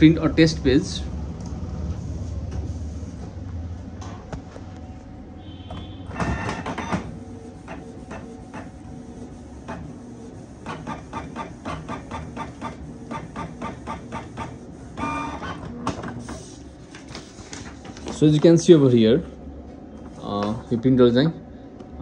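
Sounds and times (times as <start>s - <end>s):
inkjet printer motor noise: 5.8s - 18.0s
printer clicking: 10.6s - 16.2s.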